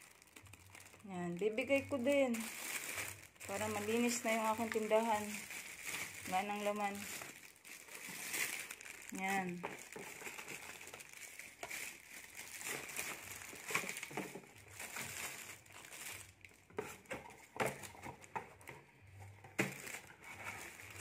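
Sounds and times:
plastic packaging crinkling: 0.0 - 21.0
cardboard boxes rustling: 2.4 - 21.0.

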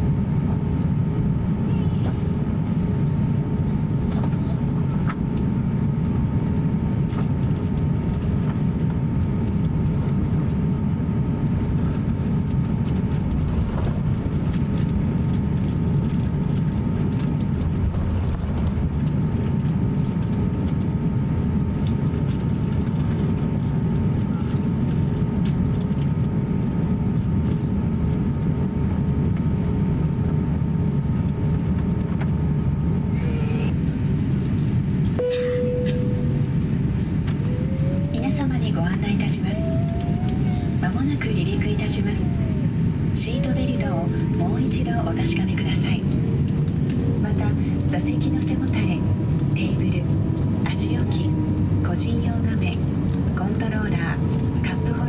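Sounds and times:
jet engines idling rumble: 0.0 - 55.0
thin steady whine: 35.1 - 55.0.

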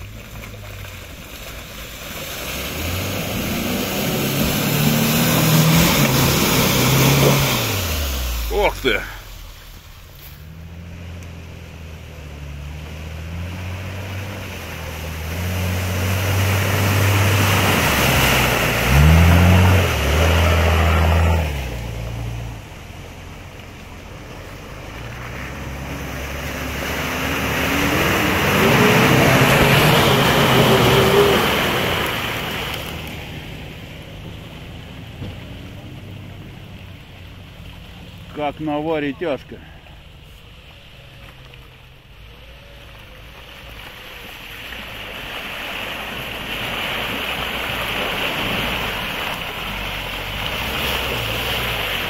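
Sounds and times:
tyres churning through mud and water: 0.0 - 52.0
engine revving hard: 2.4 - 9.1, 12.4 - 22.4, 25.2 - 32.8.

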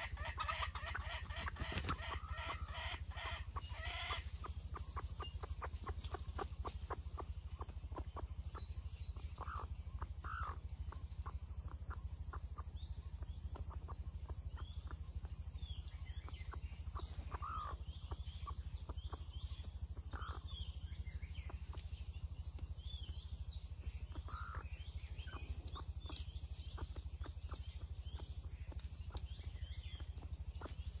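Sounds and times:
chickens clucking: 0.0 - 23.4, 24.0 - 31.0
low hum: 0.0 - 31.0.

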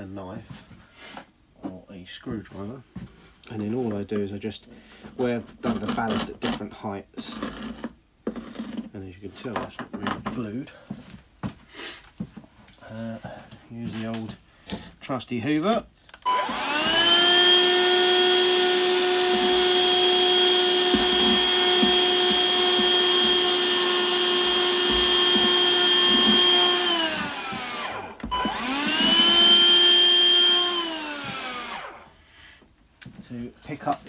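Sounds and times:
handheld vacuum motor whine: 16.2 - 32.1.

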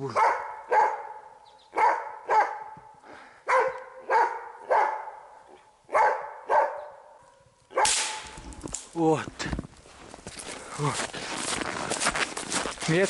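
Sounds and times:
dog barking: 0.0 - 8.0.

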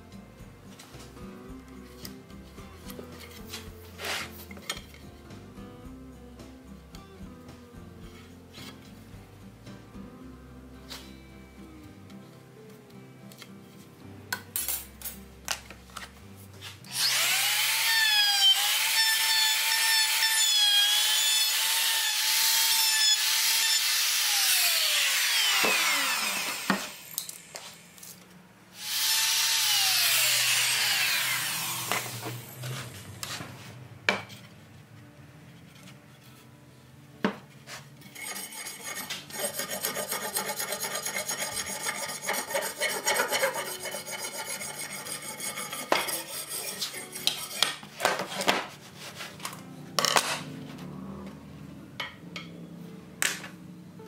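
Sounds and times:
electric planer cutting wood: 16.9 - 27.6, 28.8 - 32.5
hatchet rasping across wood: 38.1 - 47.8.

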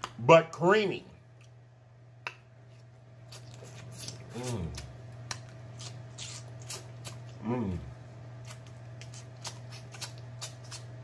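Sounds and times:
low electrical hum: 0.0 - 11.0
wet eating mouth sounds: 2.2 - 11.0
person humming: 4.3 - 4.9, 7.4 - 7.9.

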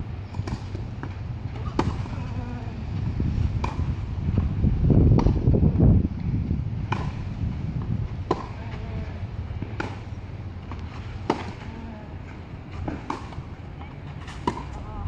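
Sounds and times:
low microphone rumble: 0.0 - 15.0
tennis ball struck by rackets: 0.3 - 2.4, 3.5 - 5.8, 6.8 - 11.8, 12.7 - 14.9.

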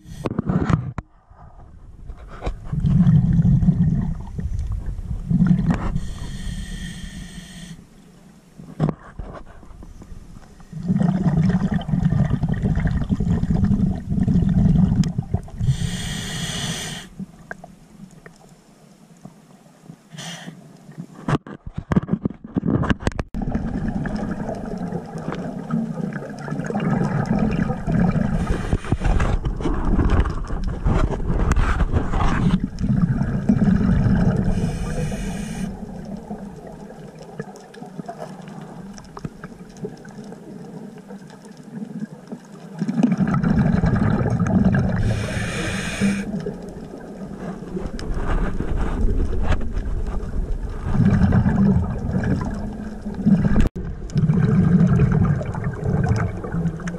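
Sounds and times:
underwater scuba exhaust bubbles: 2.6 - 7.7, 10.4 - 18.4, 23.3 - 56.9
regulator inhalation hiss: 6.0 - 7.9, 15.6 - 17.2, 20.1 - 20.6, 34.5 - 35.8, 45.0 - 46.3.

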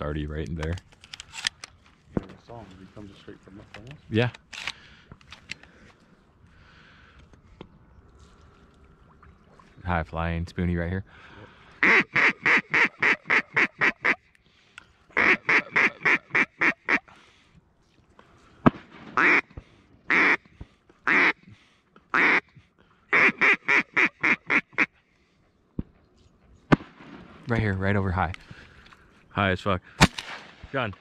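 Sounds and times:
duck quacking: 11.8 - 14.2, 15.2 - 17.1, 19.2 - 19.4, 20.1 - 20.4, 21.1 - 21.4, 22.1 - 22.4, 23.1 - 24.9.

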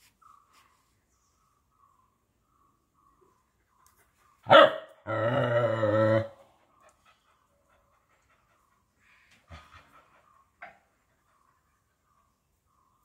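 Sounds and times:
dog barking: 4.4 - 5.1.

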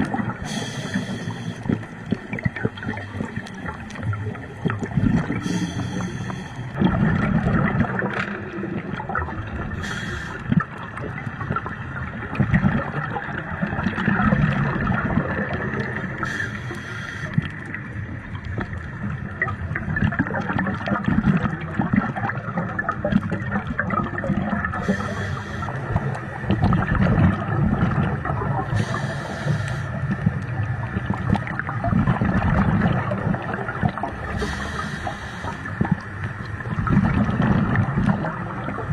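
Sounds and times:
fine crackling clicks: 0.0 - 6.7, 7.8 - 9.3, 15.6 - 21.6
hissing water rush: 0.0 - 7.9, 8.7 - 10.8, 13.4 - 18.8, 24.4 - 31.6, 32.9 - 38.9
muffled underwater gurgling: 0.0 - 38.9.

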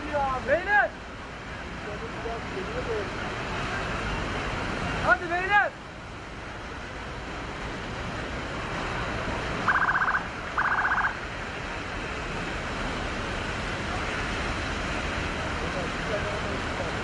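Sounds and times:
outdoor noise: 0.0 - 17.0
rapid electronic trilling beep: 9.7 - 11.2.

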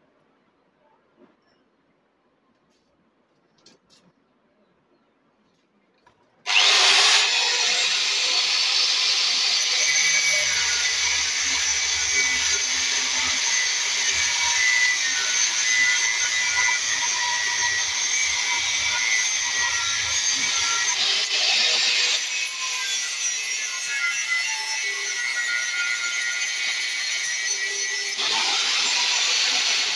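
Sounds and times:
angle grinder grinding steel: 6.5 - 29.9.

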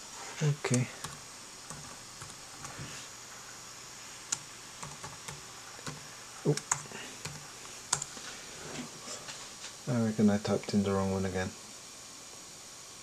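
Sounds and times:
laptop keyboard typing: 0.7 - 2.9, 4.3 - 8.2.

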